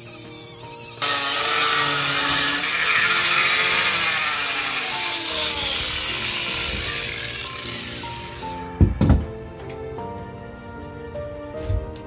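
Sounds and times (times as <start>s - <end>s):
angle grinder sanding wood: 0.0s - 8.7s.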